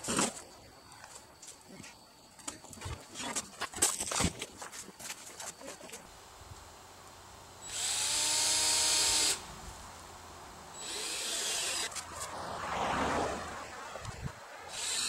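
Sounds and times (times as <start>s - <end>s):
power drill drilling into wood: 7.6s - 9.5s, 10.8s - 12.0s, 14.7s - 15.0s.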